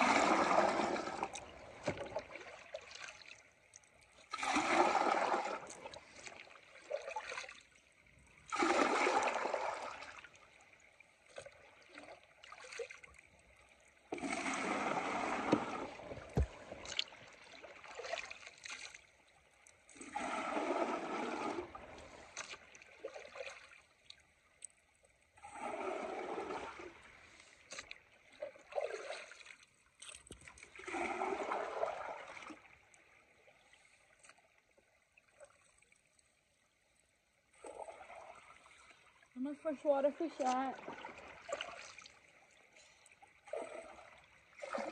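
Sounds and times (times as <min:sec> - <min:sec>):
creek running: 0:00.0 - 0:07.7, 0:14.1 - 0:19.6, 0:38.2 - 0:44.9
water sloshing in bucket: 0:00.0 - 0:07.7, 0:14.1 - 0:19.1, 0:20.0 - 0:23.8, 0:37.9 - 0:42.2, 0:43.4 - 0:44.9.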